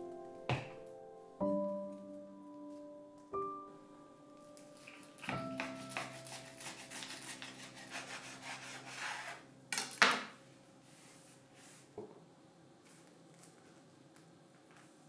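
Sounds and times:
knife sawing through toast: 0:05.9 - 0:09.4.

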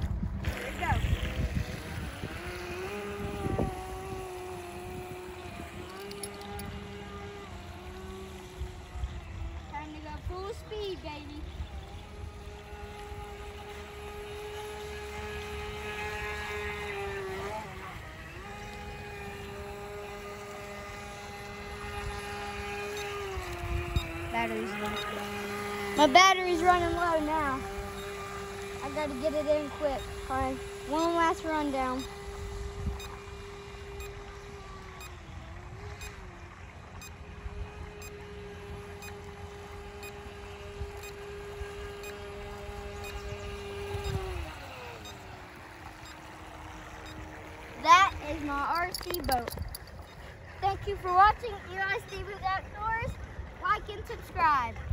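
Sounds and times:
wind noise on microphone: 0:00.0 - 0:10.7, 0:14.7 - 0:26.0, 0:31.9 - 0:36.1, 0:37.2 - 0:44.9
electric motor whining: 0:00.0 - 0:54.9.

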